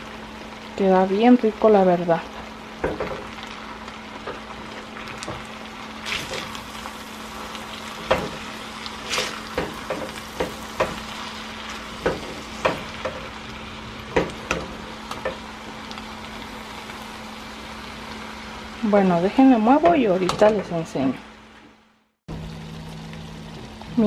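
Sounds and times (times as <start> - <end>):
food sizzling in a skillet: 0.0 - 24.0
faint steady hum: 5.5 - 24.0.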